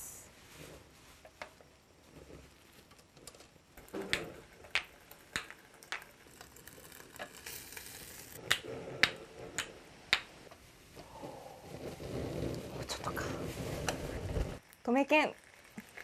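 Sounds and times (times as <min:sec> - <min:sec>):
wooden ball clacking against cups: 0:03.0 - 0:10.6.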